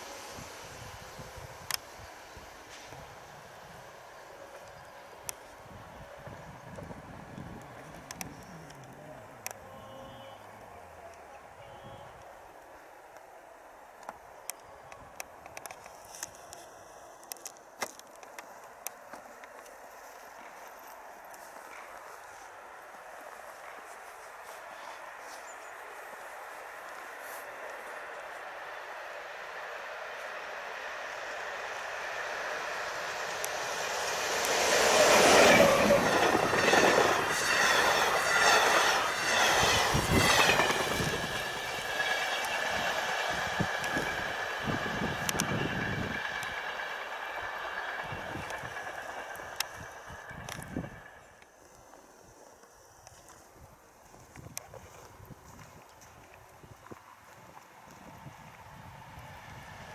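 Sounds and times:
electric locomotive passing: 0:00.0 - 0:59.9
faint train running: 0:00.0 - 0:59.9
wheels clacking over rails: 0:30.9 - 0:51.4.

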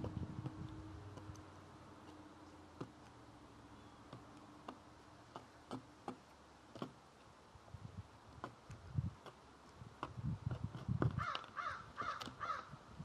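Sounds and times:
bird bill tapping on wood: 0:00.0 - 0:03.2, 0:03.9 - 0:07.1, 0:08.3 - 0:12.7.

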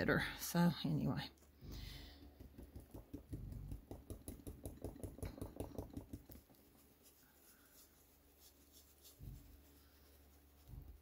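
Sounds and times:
stencil brush tapping paint: 0:01.8 - 0:11.0.

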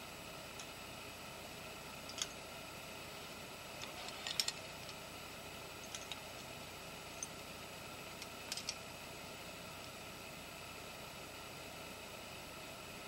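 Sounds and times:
steady hiss: 0:00.0 - 0:13.0
climbing gear clicking: 0:03.8 - 0:05.0.

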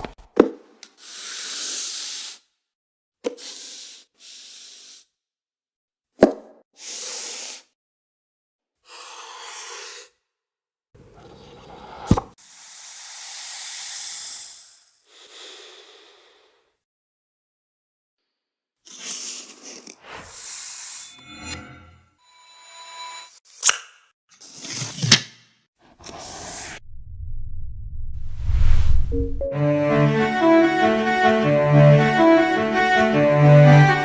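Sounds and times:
whoosh: 0:26.6 - 0:29.5.

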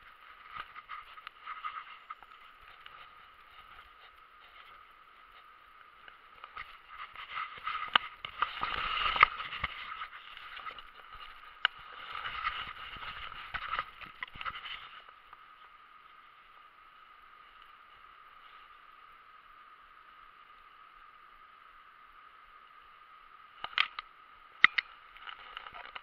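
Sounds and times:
fishing rod handling scraping: 0:06.4 - 0:15.1.

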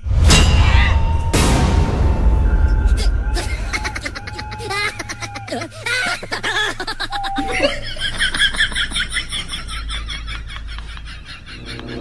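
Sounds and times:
person laughing: 0:02.9 - 0:12.0.

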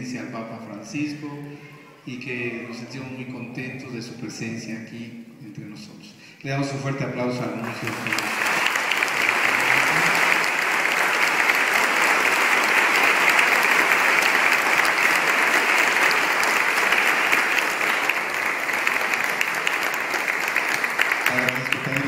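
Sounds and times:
crowd applauding: 0:07.5 - 0:22.0.

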